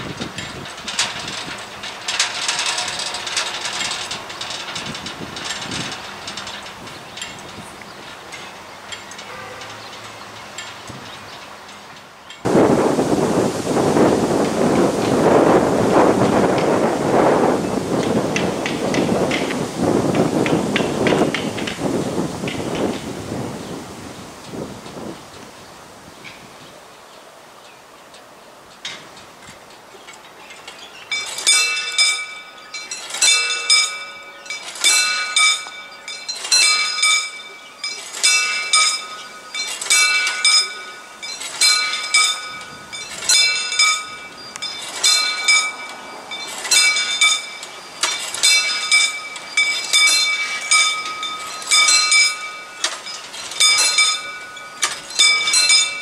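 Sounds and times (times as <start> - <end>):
mechanical warning bells ringing: 0.0 - 12.5, 27.1 - 56.0.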